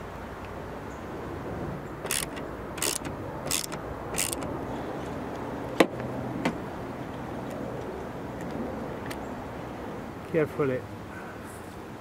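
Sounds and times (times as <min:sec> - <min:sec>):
ratcheting screwdriver: 0:02.0 - 0:04.5.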